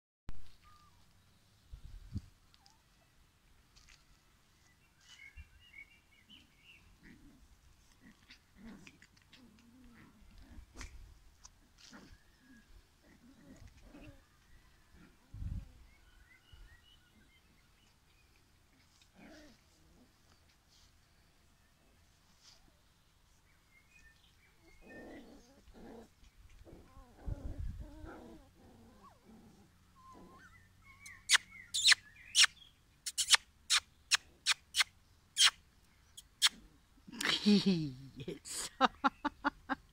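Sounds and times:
puppies play growling: 6.4s - 15.9s, 17.0s - 31.1s
bird chirping: 29.8s - 36.7s.

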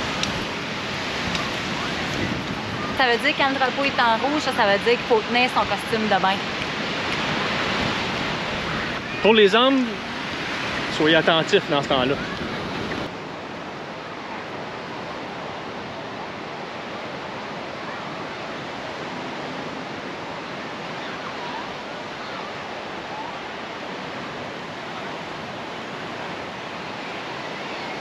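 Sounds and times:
ocean surf breaking: 0.0s - 28.0s.

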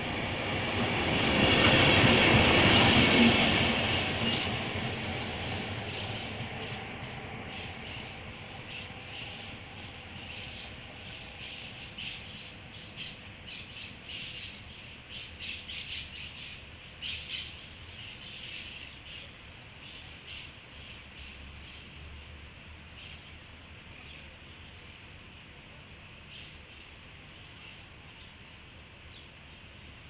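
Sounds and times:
birds calling: 3.4s - 19.3s.

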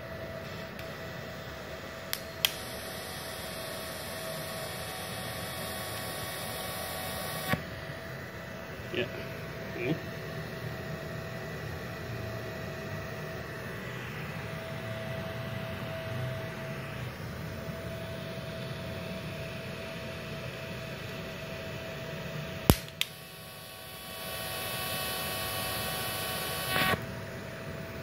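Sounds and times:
welding arc hissing buzz: 0.0s - 10.0s, 22.6s - 28.0s
welder humming: 0.0s - 28.0s
sharp arc snaps: 22.7s - 23.2s.

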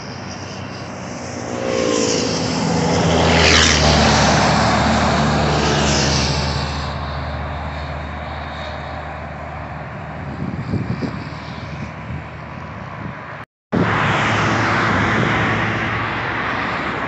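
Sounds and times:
truck driving away: 0.0s - 10.9s
steady road traffic drone: 0.0s - 17.0s.

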